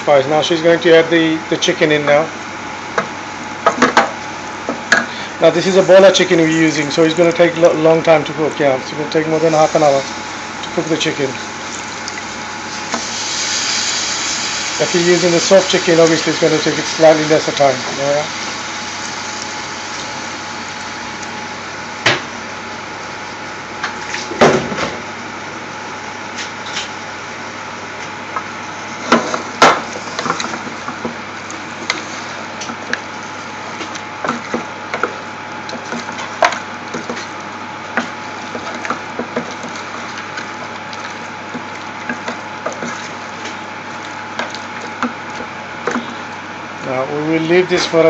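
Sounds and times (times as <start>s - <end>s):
steady hiss: 9.3s - 21.0s.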